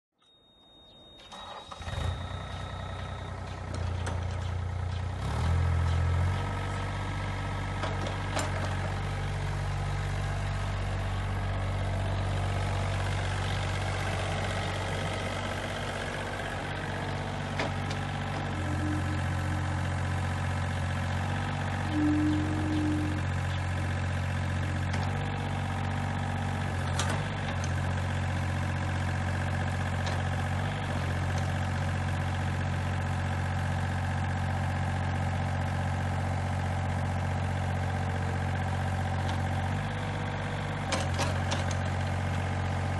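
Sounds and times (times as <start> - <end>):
high steady beep: 0.2 - 1.3
excavator diesel engine running: 0.4 - 42.9.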